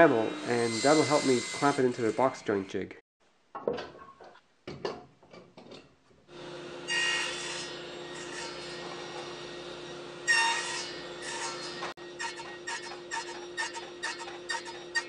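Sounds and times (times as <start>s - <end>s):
table saw cutting wood: 0.0s - 2.7s, 6.3s - 15.0s.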